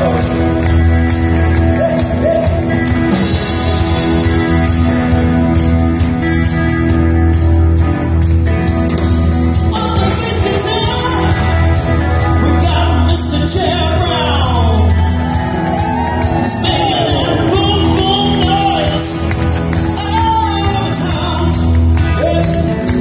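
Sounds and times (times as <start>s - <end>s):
live rock band: 0.0s - 23.0s
man singing lead: 9.7s - 15.3s, 16.0s - 23.0s.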